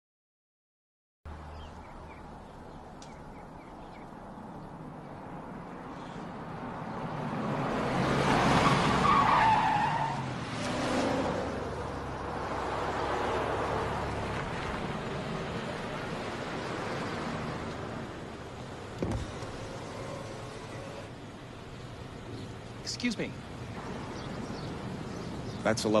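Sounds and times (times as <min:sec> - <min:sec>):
car passing by: 0:05.4 - 0:21.1.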